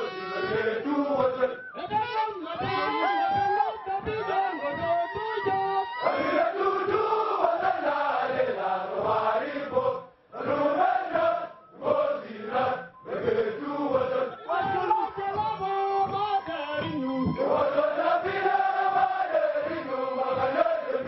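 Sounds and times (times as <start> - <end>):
crowd of men chanting: 0.0 - 21.0.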